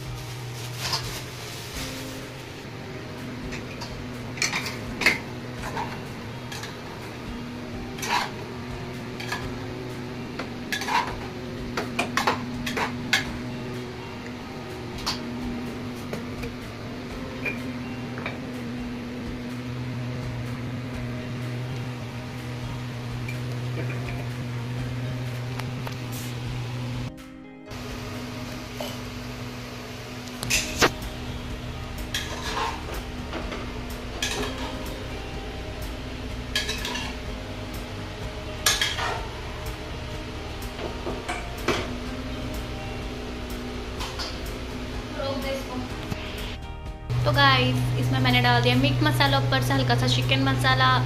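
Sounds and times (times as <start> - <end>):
kitchen appliance humming: 0.0 - 27.1, 27.7 - 51.0
glass and pots clinking: 3.5 - 6.8, 8.0 - 8.4, 9.2 - 9.6, 10.4 - 13.3, 32.1 - 34.8, 36.5 - 37.2, 38.6 - 39.4
metal spoon scraping a pot: 8.0 - 8.4, 10.7 - 11.2, 32.1 - 32.9.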